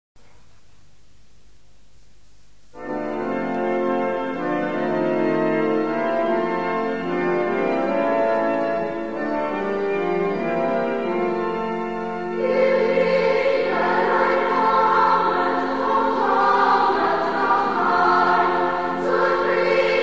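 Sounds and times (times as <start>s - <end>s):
faint hiss: 0.2s - 2.9s
sustained keyboard chords: 2.8s - 20.0s.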